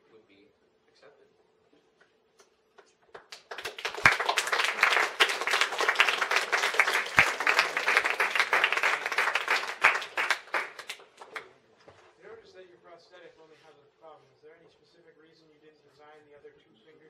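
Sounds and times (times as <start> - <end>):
audience applauding: 3.2 - 11.5.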